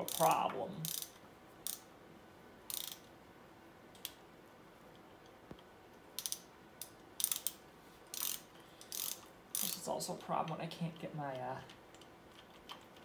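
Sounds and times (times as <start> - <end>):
hand ratchet clicking: 0.0 - 1.9, 2.7 - 3.1, 6.2 - 9.8.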